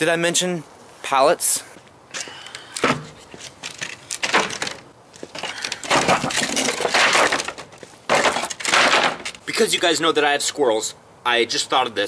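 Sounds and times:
pallet clattering and scraping: 2.8 - 9.4
wooden pallet knocking: 5.8 - 9.4.

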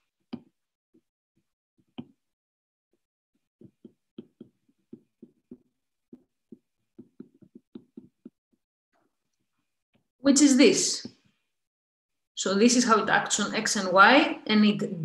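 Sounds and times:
stylus tapping on glass screen: 3.6 - 8.4.

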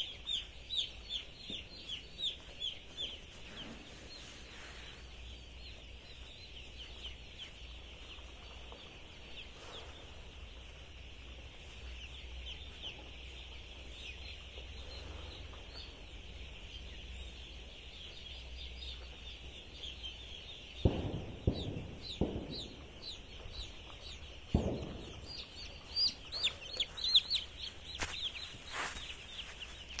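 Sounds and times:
chicks peeping: 0.0 - 30.0
footsteps in flip-flops on litter: 26.7 - 30.0.

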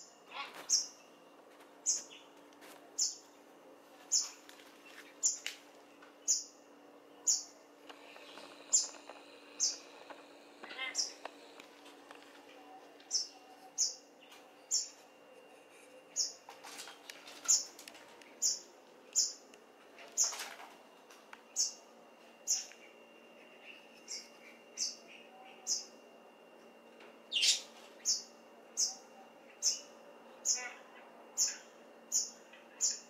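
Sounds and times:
birds peeping: 1.8 - 3.3, 4.0 - 6.6, 7.2 - 15.1, 15.7 - 20.7, 27.3 - 30.8.

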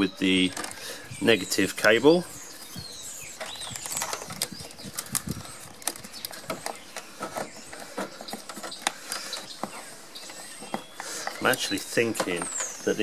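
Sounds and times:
cables rubbing and knocking on frame: 2.7 - 13.0.

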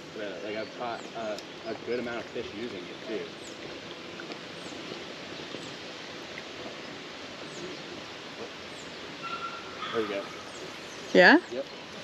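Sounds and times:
breeze and water hiss: 0.0 - 12.0
faint bird chirps: 6.7 - 12.0.

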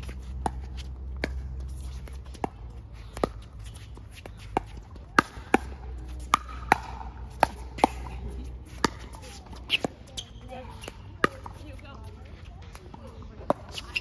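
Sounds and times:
ball bouncing on hard court: 0.0 - 14.0
paddles popping against ball: 4.5 - 8.1.

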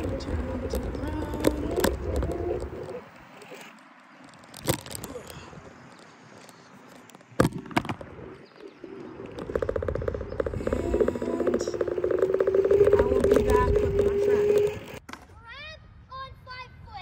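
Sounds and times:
scooter road rumble: 0.0 - 15.1
fast rattling buzz: 9.2 - 15.0.

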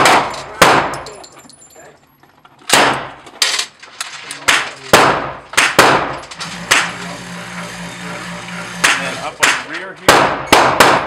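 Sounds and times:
submachine gun shots: 4.5 - 7.0.

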